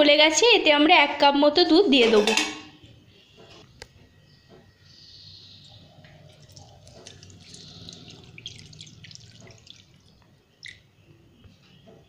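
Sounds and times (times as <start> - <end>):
milk pouring with small splashes: 6.3 - 10.9.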